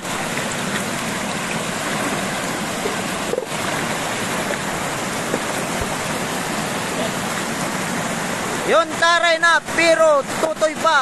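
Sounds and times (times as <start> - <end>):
splashing of person wading: 0.0 - 8.1
water rushing over spillway: 0.0 - 11.0.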